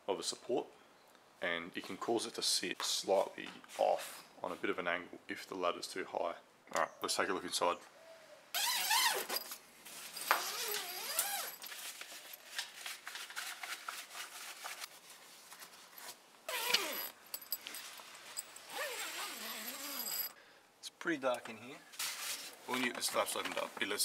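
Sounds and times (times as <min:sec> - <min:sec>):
tent zipper pulled: 0:08.6 - 0:09.5, 0:10.2 - 0:11.6, 0:16.0 - 0:17.2, 0:18.6 - 0:20.3.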